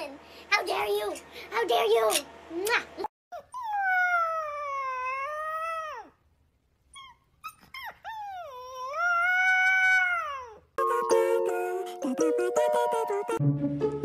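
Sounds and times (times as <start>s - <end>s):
puppy yips: 3.3s - 6.1s, 6.9s - 10.6s
puppy howling: 3.4s - 6.2s, 7.0s - 10.6s.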